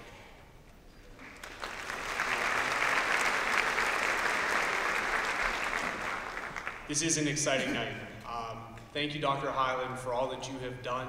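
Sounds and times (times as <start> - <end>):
audience applauding: 1.1 - 7.0.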